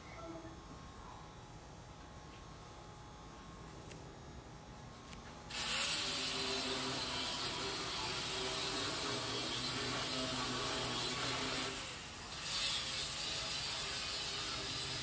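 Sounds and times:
angle grinder cutting steel: 5.5s - 15.0s.

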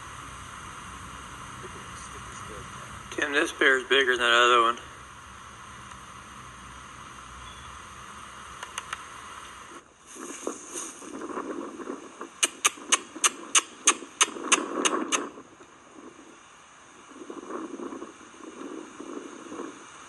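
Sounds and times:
sharp clicks: 8.6s - 9.6s, 12.4s - 15.3s.

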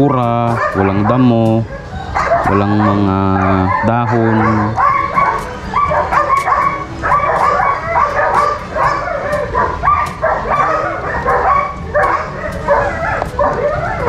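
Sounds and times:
dogs barking and yelping: 0.0s - 14.0s.

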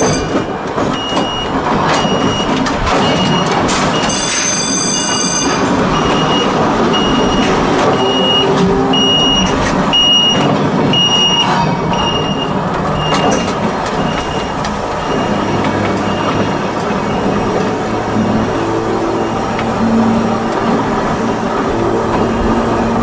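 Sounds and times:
electric railway car rumbling: 0.0s - 23.0s
electronic warning beeper: 1.0s - 13.3s.

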